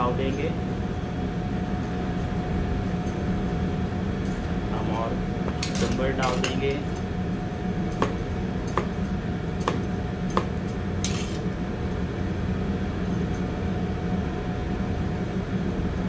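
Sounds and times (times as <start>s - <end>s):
steady low hum: 0.0s - 16.0s
knife scraping board: 11.0s - 11.4s.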